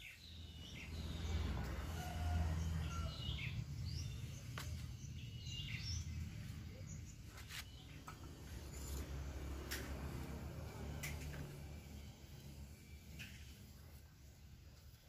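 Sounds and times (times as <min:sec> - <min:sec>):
birds chirping: 0:00.0 - 0:09.1
low outdoor rumble: 0:00.2 - 0:15.0.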